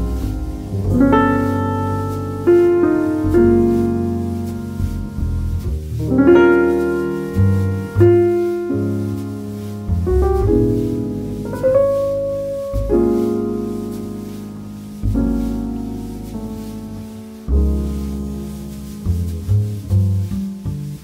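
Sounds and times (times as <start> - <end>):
slow piano chords: 0.0 - 21.0.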